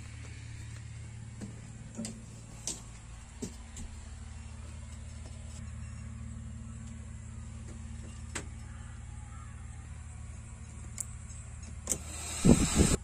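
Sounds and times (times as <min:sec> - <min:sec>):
diesel engine idling: 0:00.0 - 0:13.0.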